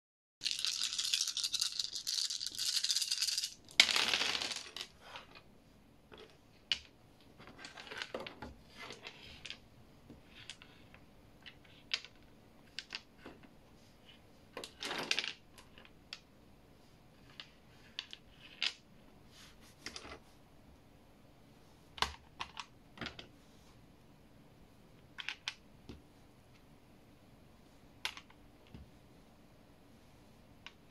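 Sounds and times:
dice shaken in hands: 0.4s - 5.0s
dice clattering: 0.4s - 5.4s, 6.1s - 9.6s, 10.2s - 13.4s, 14.5s - 16.2s, 17.2s - 18.8s, 25.1s - 25.6s, 28.0s - 28.8s
game pieces clicking: 0.4s - 5.4s.

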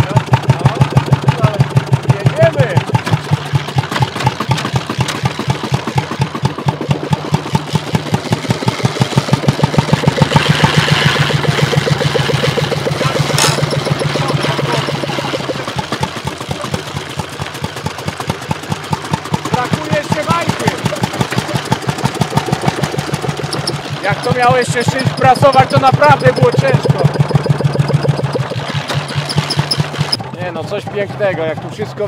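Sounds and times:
tractor engine knocking: 0.0s - 32.0s
sharp click: 13.2s - 14.2s.

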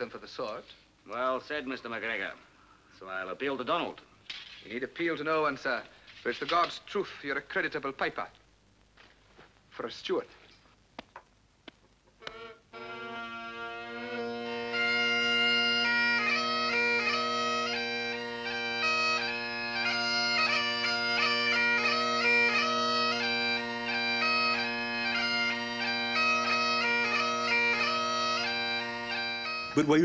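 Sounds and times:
bagpipe chanter tune: 12.2s - 30.0s
bagpipe drones: 12.2s - 30.0s.

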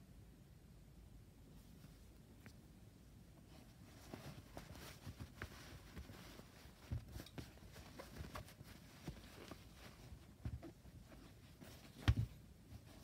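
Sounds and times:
faint rustling: 3.2s - 13.0s.

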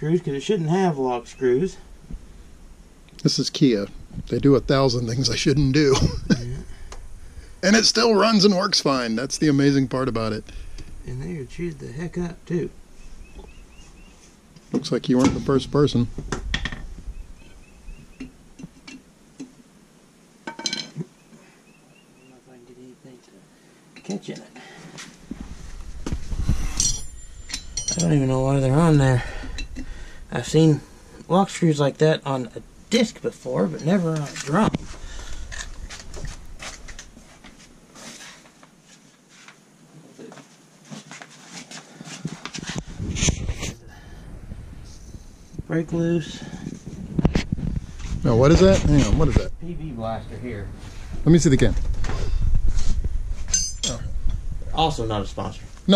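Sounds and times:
metal hand tools clinking: 26.7s - 28.4s, 53.5s - 54.0s
ringing metallic clatter: 26.7s - 28.6s, 53.5s - 54.0s.

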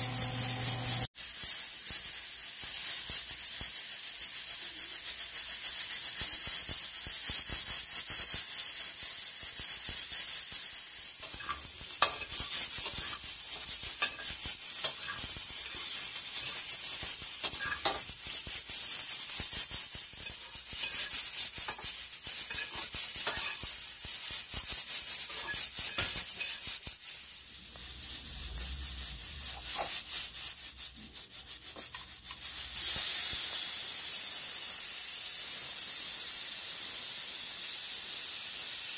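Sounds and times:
peppers sizzling in a wok: 0.0s - 38.9s
pressure cooker valve hissing: 0.0s - 38.9s
metal spatula scraping: 11.0s - 33.0s.

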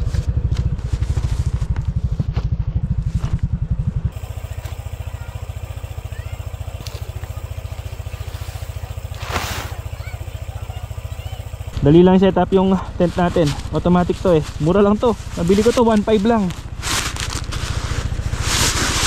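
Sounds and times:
motorcycle engine idling: 0.0s - 19.0s
brief hissing rustle: 9.2s - 9.8s.

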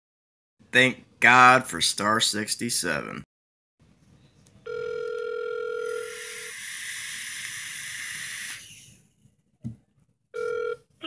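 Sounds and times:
telephone ringback tone: 4.7s - 6.1s, 10.4s - 10.9s
phone line hiss: 4.7s - 8.6s.

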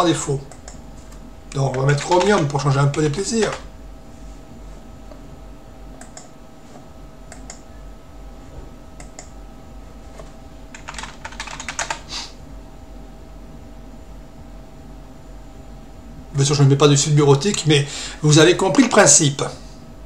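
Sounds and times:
mouse clicks: 0.5s - 1.2s, 6.0s - 6.3s, 7.3s - 7.6s, 9.0s - 9.3s
computer keyboard typing: 1.6s - 3.7s, 10.7s - 12.1s.

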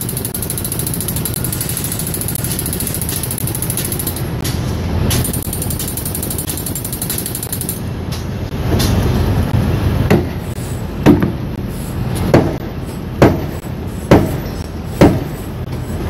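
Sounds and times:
crane machinery rumble: 0.0s - 16.0s
sharp knocks: 11.0s - 11.4s, 12.3s - 12.6s, 13.2s - 15.4s.

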